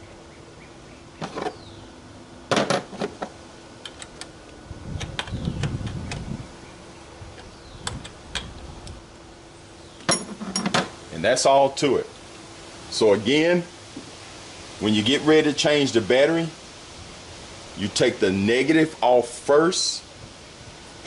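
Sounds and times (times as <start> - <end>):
soft handling rumble: 2.6 - 11.1.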